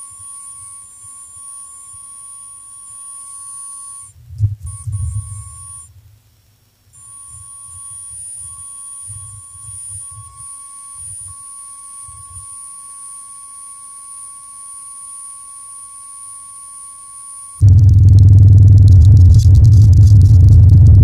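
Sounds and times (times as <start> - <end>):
faint hiss: 0.0 - 17.6
high electronic tone: 4.7 - 5.9, 7.0 - 21.0
low rumbling pulses: 17.6 - 21.0.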